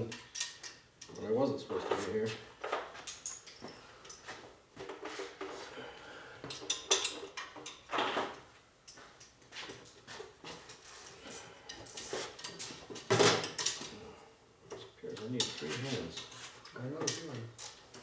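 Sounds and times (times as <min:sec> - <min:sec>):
metal tools clinking on metal: 0:03.0 - 0:04.3, 0:06.5 - 0:07.9.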